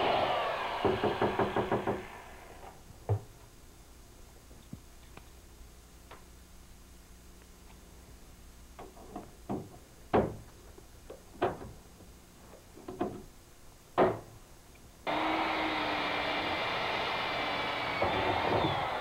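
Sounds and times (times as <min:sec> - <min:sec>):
shop vacuum running: 0:15.1 - 0:19.0.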